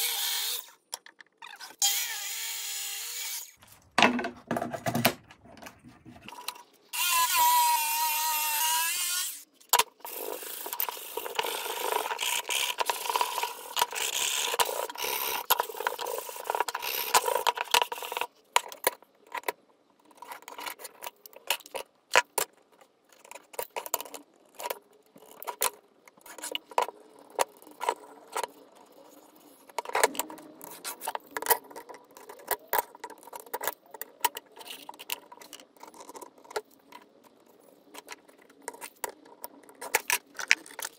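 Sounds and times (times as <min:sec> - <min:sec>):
power saw cutting plywood: 0:01.7 - 0:03.6.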